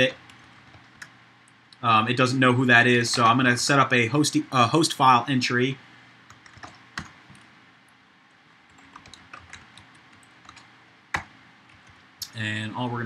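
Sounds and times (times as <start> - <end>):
keyboard typing: 0.2 - 1.2, 3.1 - 3.5, 6.3 - 7.5, 8.7 - 12.0.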